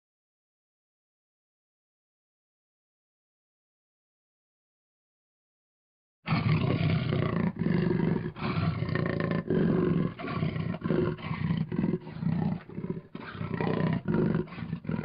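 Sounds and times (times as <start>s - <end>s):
big cat roaring: 6.3s - 15.0s.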